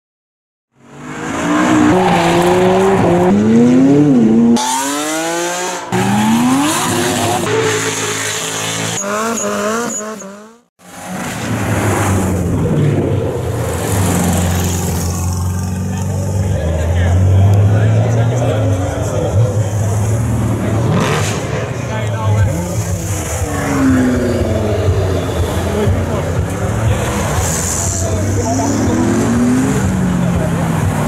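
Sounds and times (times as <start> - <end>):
race car engines accelerating: 0.8 - 31.0.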